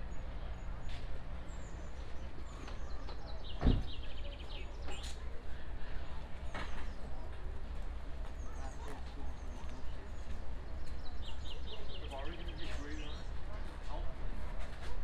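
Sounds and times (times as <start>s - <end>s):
sudden thump: 3.6s - 4.0s.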